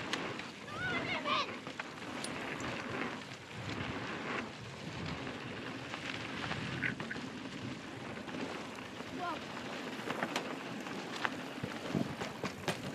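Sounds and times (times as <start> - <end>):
bike rattling and knocking: 0.0 - 12.9
bike tyres on dirt trail: 0.0 - 12.9
wind noise on microphone: 2.4 - 8.1, 11.6 - 12.9.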